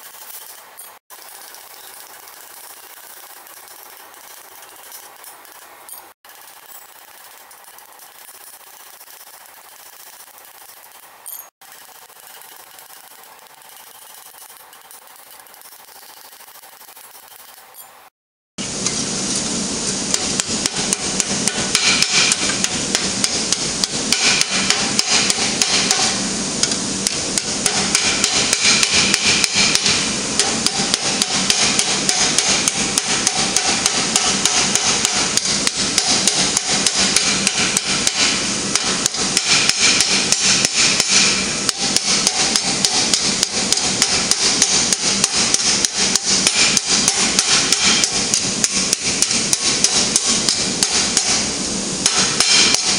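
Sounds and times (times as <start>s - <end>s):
hammer blows on steel: 20.1s - 52.9s.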